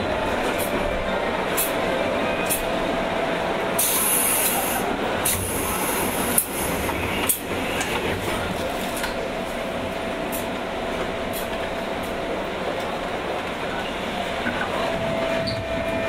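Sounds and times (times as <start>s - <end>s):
train wheels rumbling on rail: 0.0s - 16.0s
air hiss: 3.8s - 6.7s.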